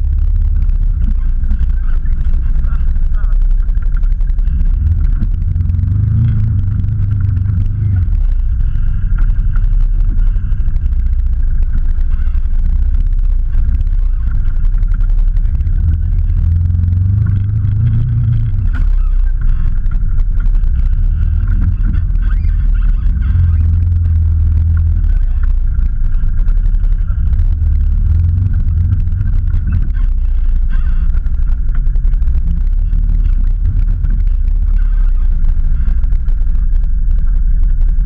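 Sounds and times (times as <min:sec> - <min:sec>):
engine rumbling and revving: 0:00.0 - 0:38.0.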